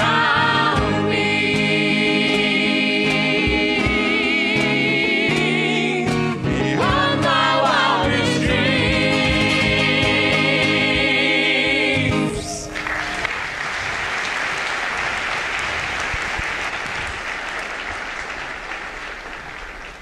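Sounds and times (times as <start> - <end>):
voices singing a chord: 0.0 - 12.7
applause: 12.7 - 20.0.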